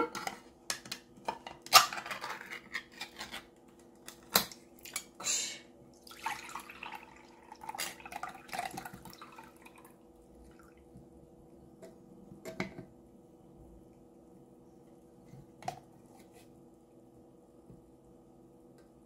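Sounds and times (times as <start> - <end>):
juice pouring into a cup: 6.0 - 10.0.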